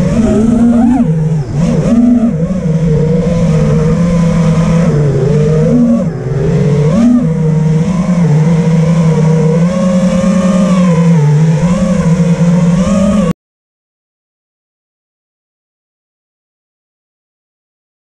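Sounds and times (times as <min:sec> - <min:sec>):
quadcopter motors buzzing: 0:00.0 - 0:13.3.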